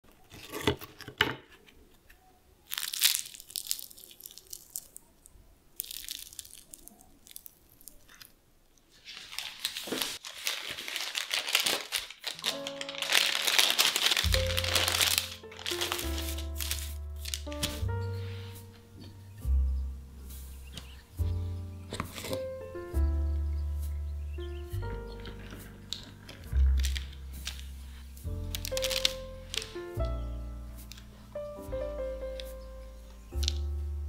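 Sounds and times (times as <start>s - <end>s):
pastry twists crackling: 2.0s - 34.0s
flaky pastry rustling and tearing: 2.6s - 17.8s, 25.3s - 29.9s
background music with bass: 14.3s - 34.0s.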